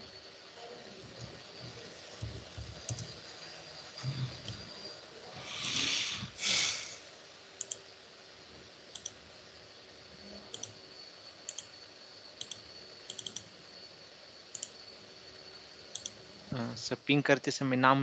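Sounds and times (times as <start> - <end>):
faint high-pitched whine: 0.0 - 18.0
computer mouse clicking: 2.8 - 3.2, 7.6 - 7.8, 8.9 - 9.2, 10.5 - 10.8, 11.4 - 11.8, 12.4 - 13.5, 14.5 - 14.8, 15.9 - 16.2.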